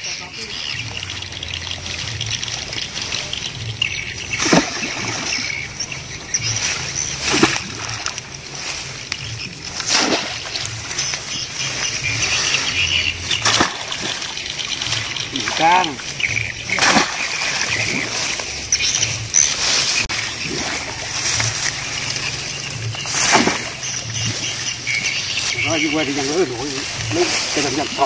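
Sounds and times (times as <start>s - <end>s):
pole splashing in water: 4.3s - 11.4s, 12.0s - 25.7s.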